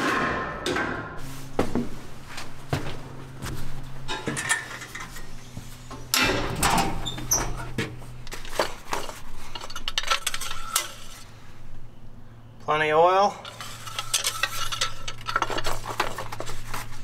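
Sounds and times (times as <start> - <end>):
boots on steel platform: 0.0 - 4.4
low steady hum: 0.1 - 17.0
metal panel swung open: 6.1 - 8.0.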